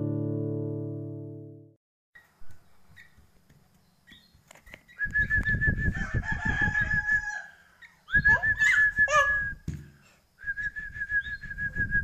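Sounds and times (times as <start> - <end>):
young birds chirping: 3.8 - 5.1
knocks and rustling at wooden cage: 9.6 - 10.1.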